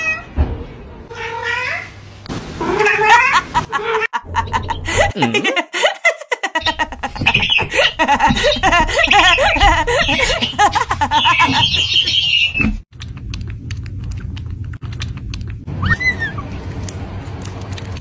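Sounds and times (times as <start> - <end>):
high wavering laughter: 3.0 - 12.1.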